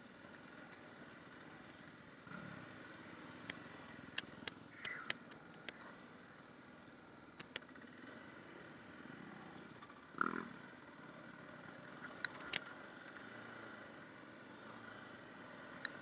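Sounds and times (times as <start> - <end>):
muffled dirt bike engine: 0.0 - 16.0
sharp clicks: 3.4 - 5.8, 7.4 - 7.8, 12.2 - 12.7.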